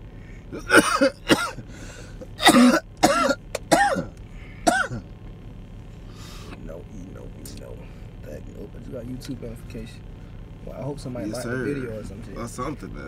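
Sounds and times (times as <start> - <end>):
man coughing: 0.5 - 5.1.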